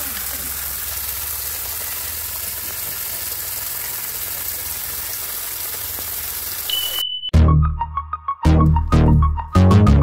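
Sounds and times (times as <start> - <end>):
water pouring from tap: 0.0 - 6.7
water jet hissing from pipe: 0.0 - 7.0.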